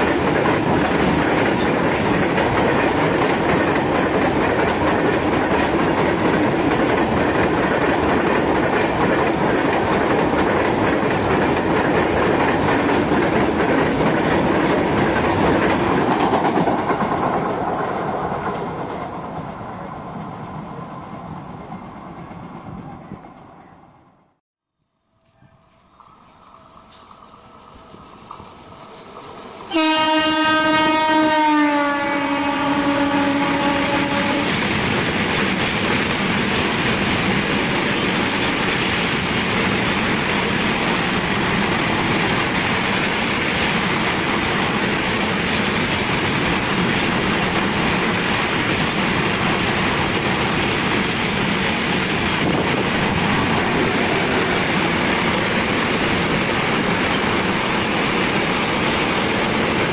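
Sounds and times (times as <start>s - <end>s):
freight train wagons rolling past: 0.0s - 23.7s, 25.2s - 59.9s
locomotive horn: 29.7s - 34.5s.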